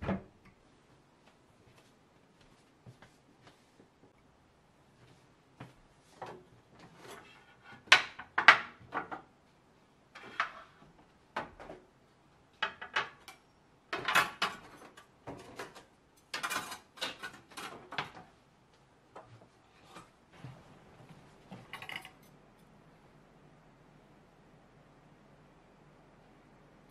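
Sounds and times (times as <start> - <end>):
metal utensils clattering: 14.0 - 17.9, 21.7 - 22.3.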